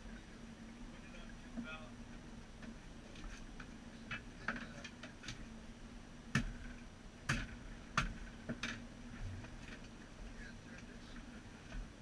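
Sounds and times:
faint low hum: 0.0 - 12.0
gear clicking and knocking in boat: 6.3 - 10.0.

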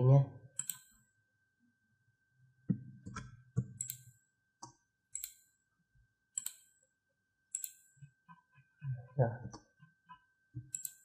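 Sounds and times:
computer mouse clicking: 3.1 - 5.4, 6.4 - 6.7, 7.5 - 7.9, 10.6 - 11.0.

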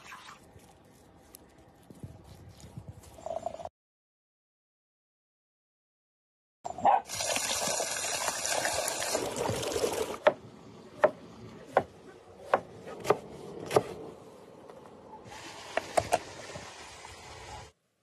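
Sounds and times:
water running from a tap: 7.1 - 10.2.

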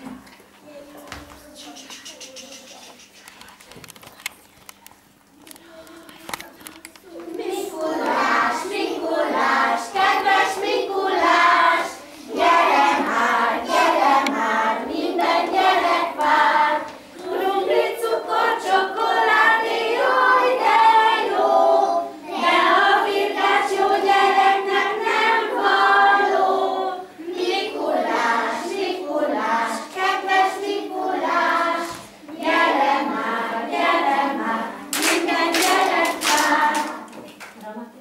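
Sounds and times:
children singing together: 7.0 - 37.2.

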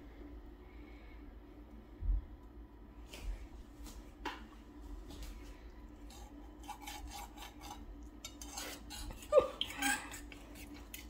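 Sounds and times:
faint steady hum: 0.0 - 11.0
knife clinking and scraping on pan: 6.6 - 10.3.

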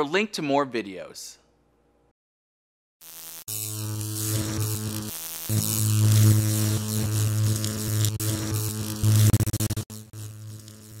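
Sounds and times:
crackling static: 3.0 - 11.0
electric buzzing hum: 3.0 - 11.0.

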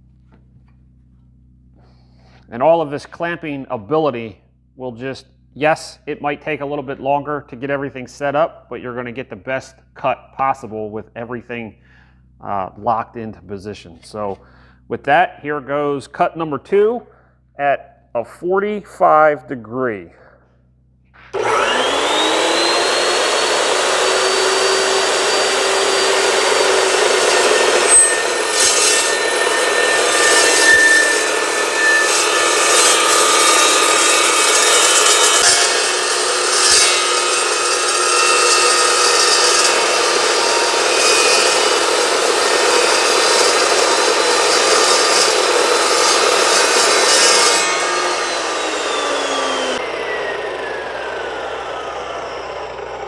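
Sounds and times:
chop saw motor whine: 21.2 - 53.0
saw grinding through steel tube: 21.2 - 53.0.

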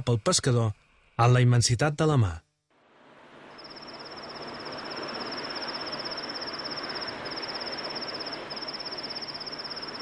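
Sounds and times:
cricket trilling: 3.4 - 10.0.

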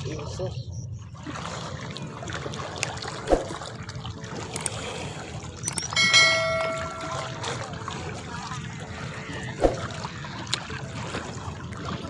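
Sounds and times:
bell ringing: 5.7 - 7.6.

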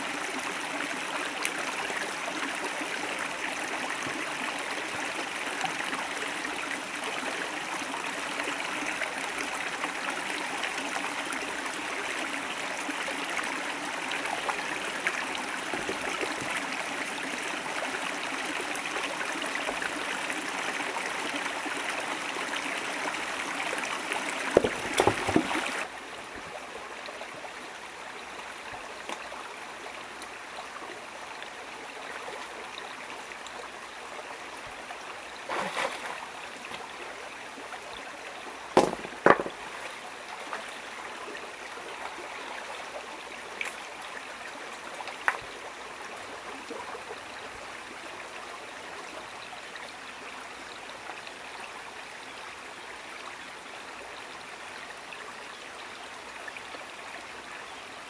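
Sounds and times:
river water rushing: 0.0 - 27.0, 35.4 - 37.6
sharp knocks: 24.6 - 25.6, 38.8 - 39.6.

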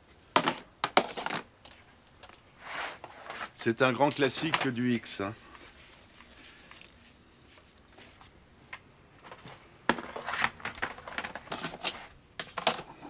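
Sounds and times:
handling clicks knocks and rustles: 3.0 - 5.0, 7.8 - 13.0.

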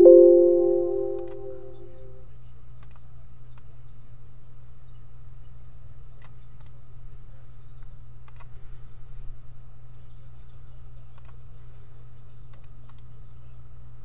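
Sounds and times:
low hum: 0.0 - 2.1.

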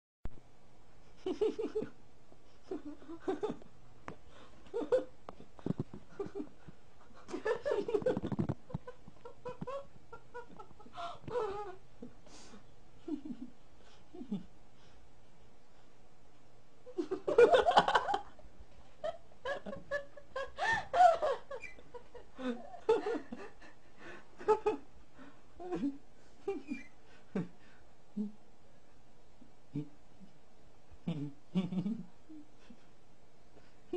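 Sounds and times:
people giggling: 1.2 - 2.0, 2.6 - 3.7, 4.6 - 11.8, 13.0 - 13.5, 16.9 - 18.4, 19.0 - 24.8, 31.1 - 32.9.

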